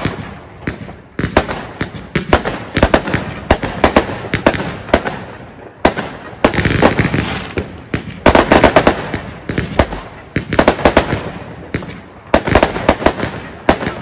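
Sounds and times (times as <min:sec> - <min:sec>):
firework bangs: 0:00.0 - 0:14.0
firework crackling: 0:00.0 - 0:14.0.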